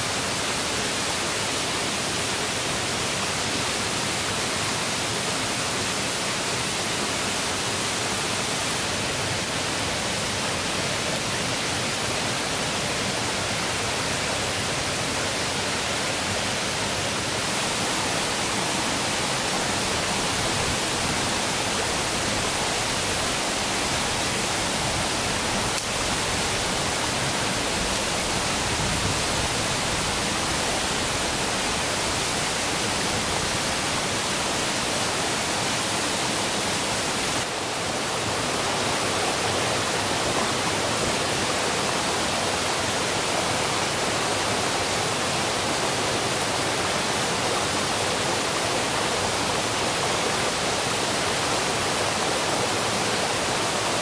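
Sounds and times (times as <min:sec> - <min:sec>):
river water rushing: 0:00.0 - 0:54.0.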